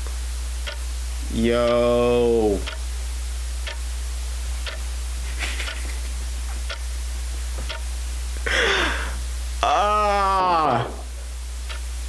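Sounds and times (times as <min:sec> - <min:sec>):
steady low hum: 0:00.0 - 0:12.0
clock ticking: 0:00.6 - 0:00.9, 0:01.5 - 0:02.9, 0:03.6 - 0:03.9, 0:04.6 - 0:06.9, 0:07.6 - 0:07.9, 0:11.6 - 0:11.9
breathy vocal sound: 0:08.5 - 0:11.1.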